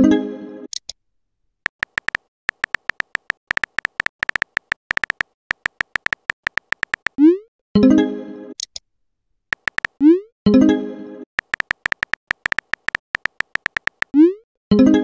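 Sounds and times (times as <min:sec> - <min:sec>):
keyboard typing clicks: 0:01.7 - 0:07.2, 0:09.5 - 0:10.1, 0:11.4 - 0:14.2.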